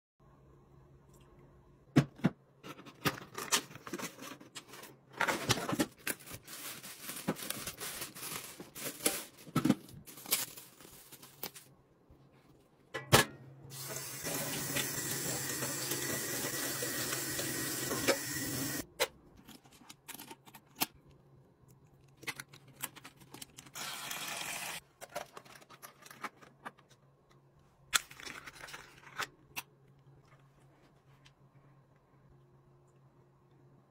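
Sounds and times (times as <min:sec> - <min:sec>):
cardboard packaging rustling: 0:03.0 - 0:11.8
kitchen tap running into sink: 0:13.7 - 0:18.8.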